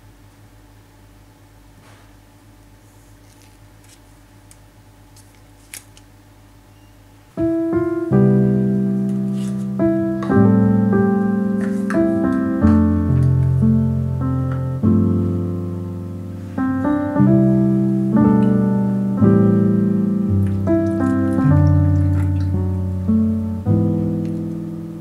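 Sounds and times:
low steady hum: 0:00.0 - 0:25.0
background piano music: 0:07.3 - 0:25.0.

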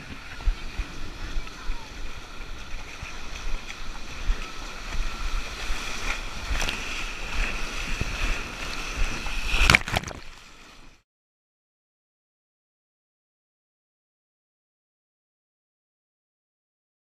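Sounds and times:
wind noise: 0:00.0 - 0:10.8
shallow surf sloshing: 0:00.0 - 0:11.0
sharp knocks or splashes: 0:09.5 - 0:10.4.

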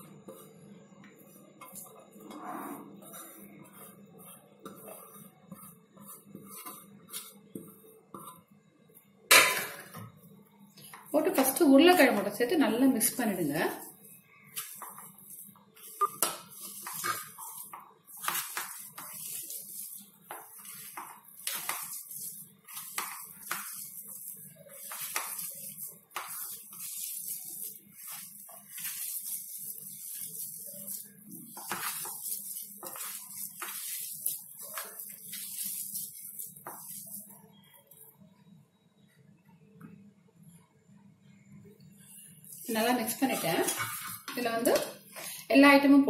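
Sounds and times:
hands squishing wet food: 0:13.5 - 0:38.1.

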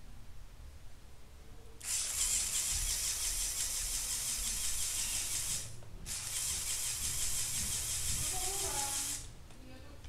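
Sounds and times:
small electric motor whirring: 0:01.8 - 0:09.3.

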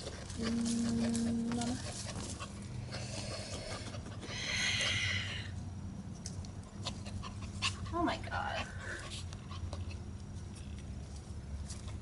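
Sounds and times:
dog digging in soil: 0:00.0 - 0:04.3.

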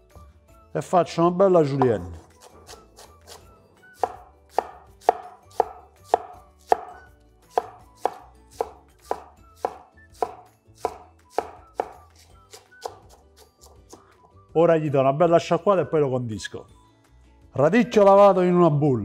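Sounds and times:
knife chopping on wooden board: 0:01.8 - 0:14.1.

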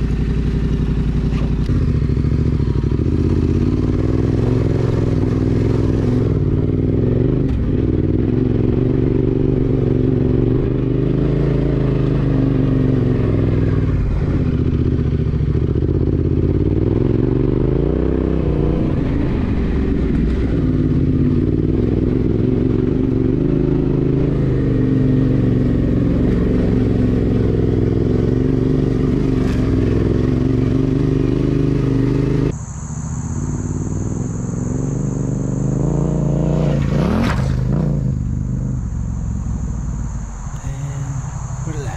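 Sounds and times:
motorcycle engine revving: 0:00.0 - 0:41.9
steady high whistle: 0:38.6 - 0:41.9.

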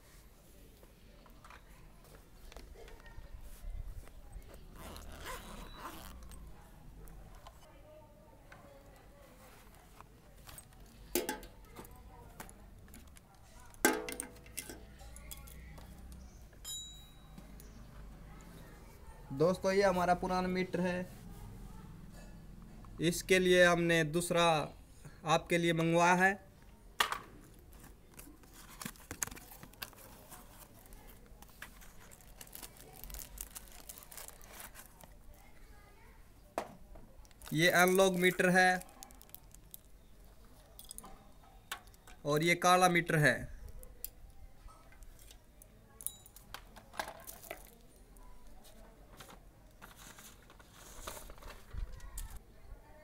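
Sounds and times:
handling clicks and rustles: 0:08.5 - 0:16.3, 0:27.1 - 0:35.4, 0:44.8 - 0:52.4.

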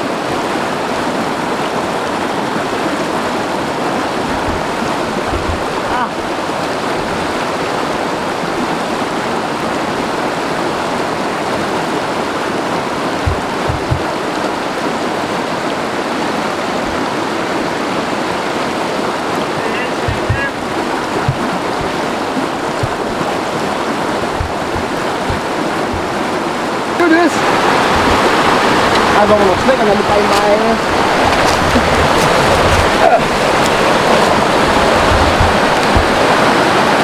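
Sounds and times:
stream rushing over rocks: 0:00.0 - 0:37.0
soft low bumps: 0:04.1 - 0:06.0, 0:13.2 - 0:14.1, 0:20.1 - 0:26.4, 0:27.8 - 0:29.7, 0:30.4 - 0:36.4.

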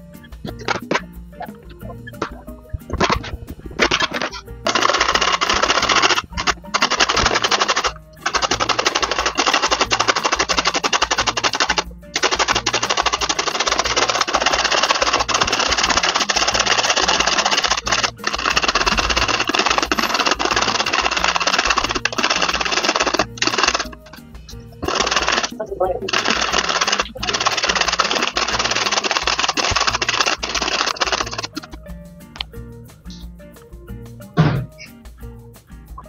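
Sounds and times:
background music: 0:00.0 - 0:36.0
carrot grating on plastic grater: 0:03.8 - 0:24.2, 0:26.1 - 0:31.7.

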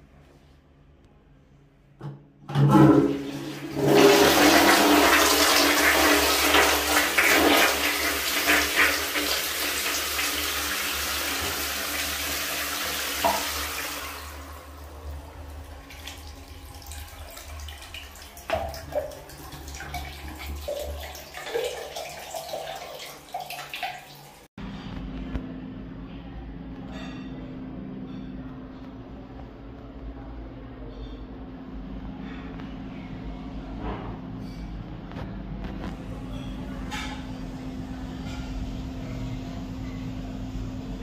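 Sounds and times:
toilet flushing: 0:02.5 - 0:24.5
water trickling and gurgling: 0:15.5 - 0:24.5.

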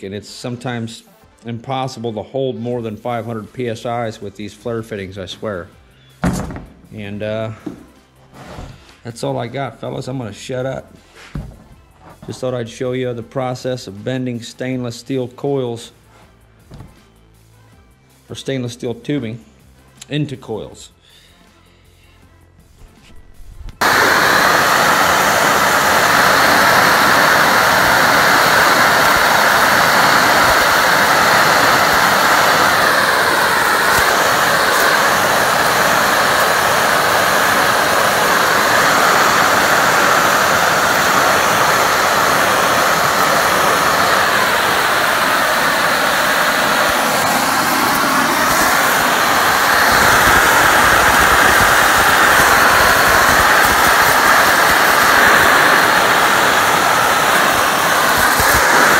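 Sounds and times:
steam hissing from pipe: 0:23.8 - 0:58.9.

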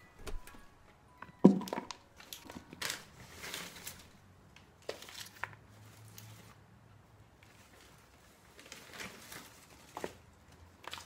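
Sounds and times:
grapes knocking into plastic bowl: 0:01.4 - 0:02.0
plastic bag crinkling: 0:01.6 - 0:04.2.

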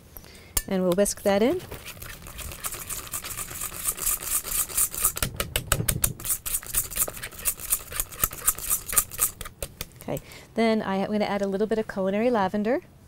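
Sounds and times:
whisk scraping a metal bowl: 0:01.0 - 0:05.3, 0:06.2 - 0:09.6.

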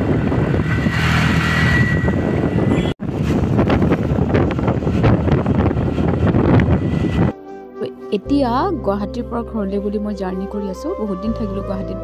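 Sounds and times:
wind buffeting microphone: 0:00.0 - 0:07.4
road noise: 0:00.0 - 0:08.8.

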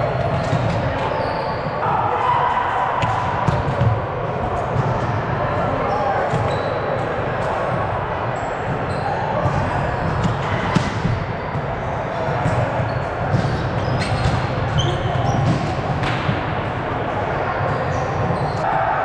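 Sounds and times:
background chatter: 0:00.0 - 0:19.0
volleyball hits and bounces: 0:00.1 - 0:01.2, 0:03.0 - 0:05.4, 0:08.7 - 0:16.7
shoes squeaking on floor: 0:01.0 - 0:01.8, 0:08.9 - 0:09.3, 0:12.9 - 0:15.6, 0:17.9 - 0:18.6.

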